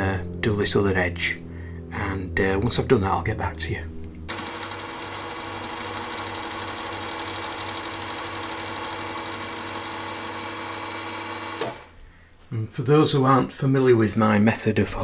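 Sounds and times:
milling machine cutting metal: 4.3 - 11.9.

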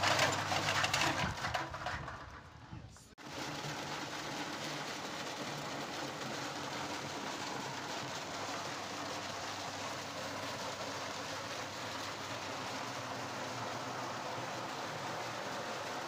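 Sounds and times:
walnuts clattering in a drum: 0.0 - 2.4.

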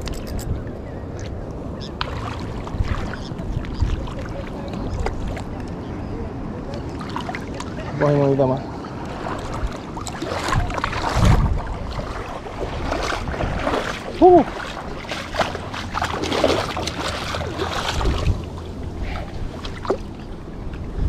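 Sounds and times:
wind buffeting microphone: 0.0 - 21.0
sea surf washing: 1.8 - 21.0.

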